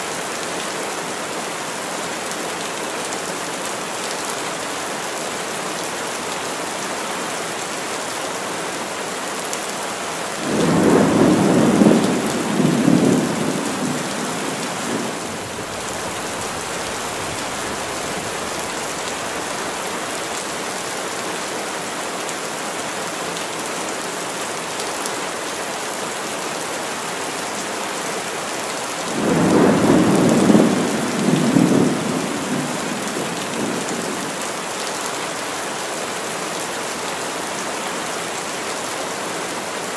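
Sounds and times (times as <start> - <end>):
heavy rain falling: 0.0 - 39.9
thunder rumbling: 10.4 - 19.6, 29.2 - 34.3.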